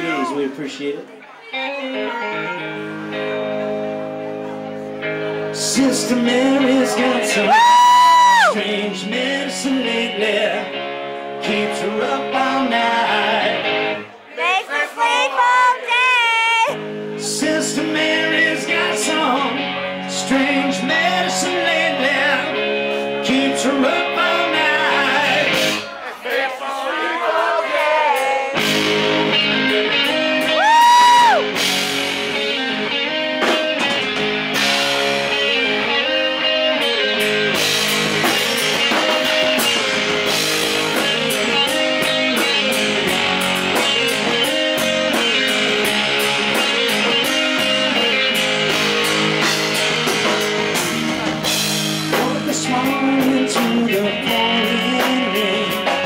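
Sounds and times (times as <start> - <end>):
electric guitar lead: 1.3 - 14.2, 16.0 - 25.9, 28.2 - 56.0
bass guitar: 1.5 - 14.1, 16.2 - 25.9, 28.1 - 56.0
drums: 1.9 - 14.0, 16.1 - 56.0.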